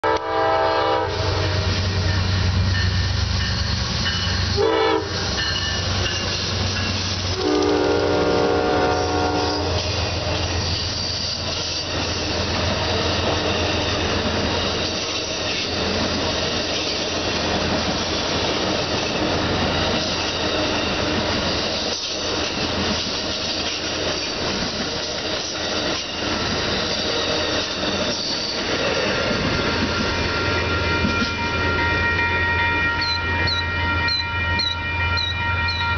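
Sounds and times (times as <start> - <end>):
train horn blasts: 0.0 - 2.5, 4.5 - 5.6, 7.3 - 10.0, 30.3 - 35.9
wheels rumbling on rail: 0.0 - 35.9
locomotive engine drone: 1.0 - 16.6.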